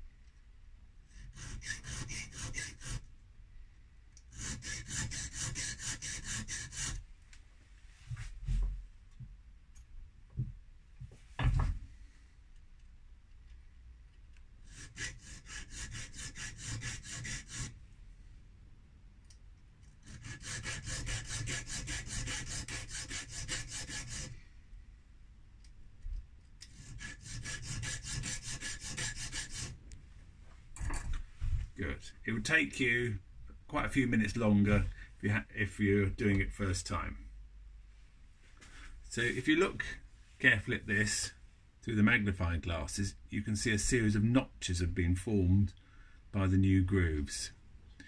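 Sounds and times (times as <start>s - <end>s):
file scraping metal wheel: 1.1s - 3.1s, 4.3s - 7.0s, 14.6s - 17.8s, 20.0s - 24.4s, 26.6s - 29.8s.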